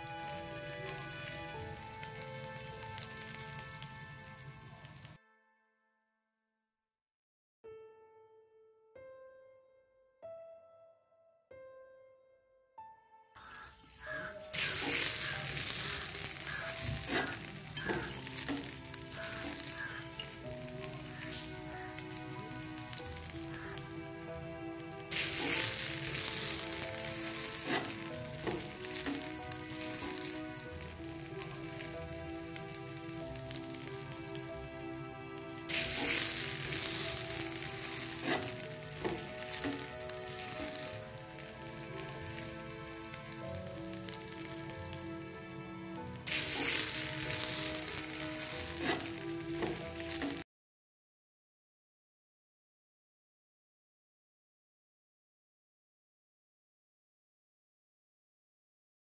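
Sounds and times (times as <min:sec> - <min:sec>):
sizzling on hot griddle: 0:00.0 - 0:05.2, 0:13.4 - 0:50.4
background music: 0:00.0 - 0:06.0, 0:07.7 - 0:50.4
oil spitting: 0:13.4 - 0:45.6, 0:46.2 - 0:50.4
sharp pops: 0:14.0 - 0:24.2, 0:25.0 - 0:34.8
oil pouring: 0:38.8 - 0:45.2.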